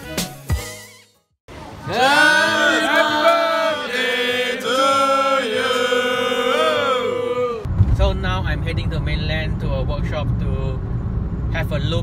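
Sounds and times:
group chanting: 1.8 - 7.7.

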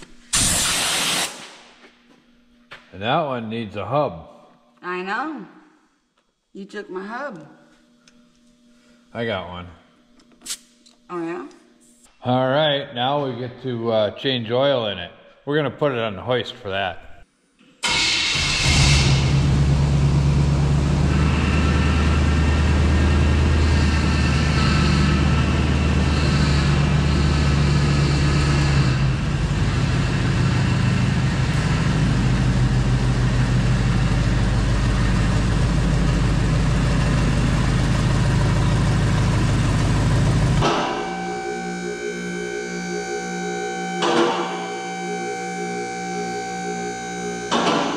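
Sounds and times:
truck engine idling: 19.3 - 42.1.

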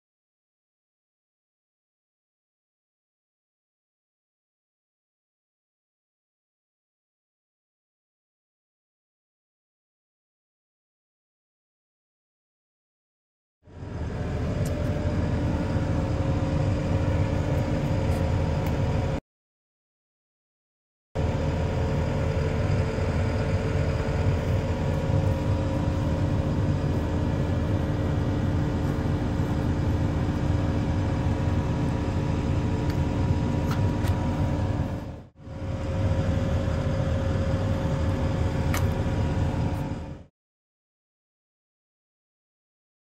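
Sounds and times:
diesel engine idling: 13.7 - 19.2, 21.2 - 40.3.

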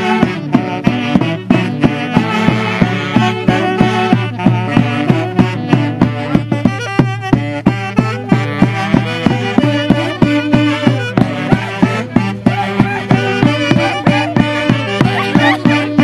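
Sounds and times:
saxophone melody: 0.0 - 16.0
steady drum beat: 0.0 - 16.0.

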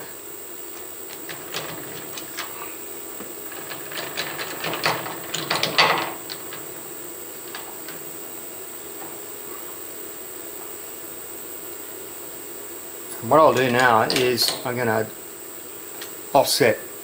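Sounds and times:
steady background hum: 0.0 - 17.0
metal clinks and knocks: 3.5 - 6.7.

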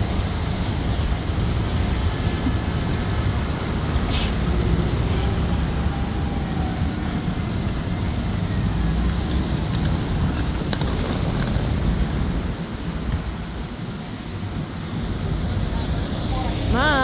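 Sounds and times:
city traffic rumble: 0.0 - 17.0
brief hiss: 4.1 - 4.4.

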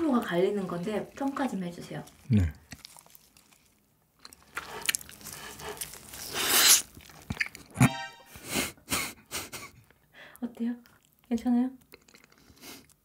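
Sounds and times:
chewing dumpling: 0.0 - 7.8, 9.8 - 13.0
musical sound effect: 7.8 - 8.4.

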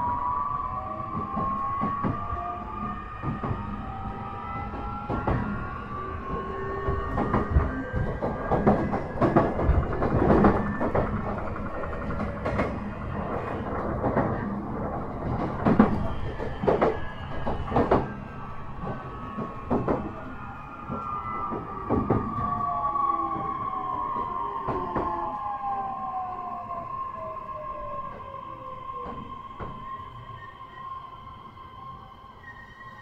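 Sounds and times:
train rumble: 0.0 - 32.5
wheels clacking over rail joints: 6.3 - 18.2.

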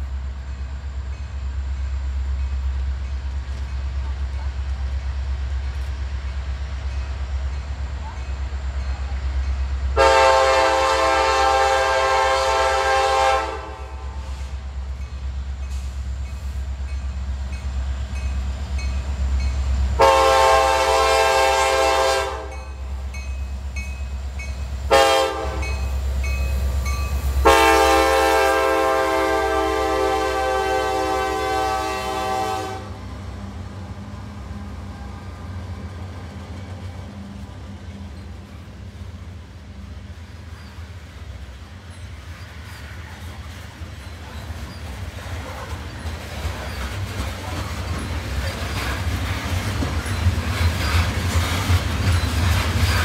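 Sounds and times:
train air horn blasts: 10.0 - 14.6, 20.0 - 22.7, 24.9 - 25.9, 27.4 - 33.0.

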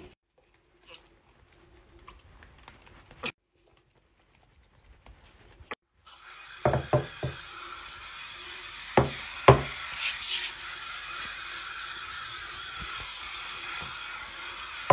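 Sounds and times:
rubbing hiss: 6.1 - 14.9.

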